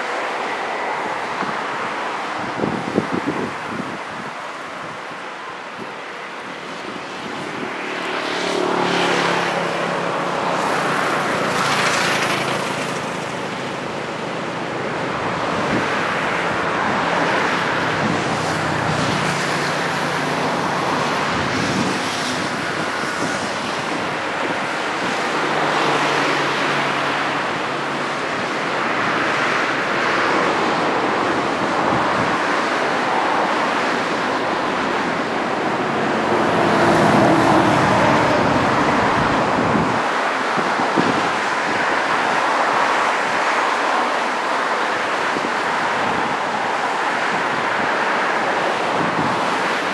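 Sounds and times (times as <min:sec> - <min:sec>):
car engines passing: 0:00.0 - 0:49.9
surf rushing: 0:00.0 - 0:49.9
wind on microphone: 0:00.0 - 0:49.9.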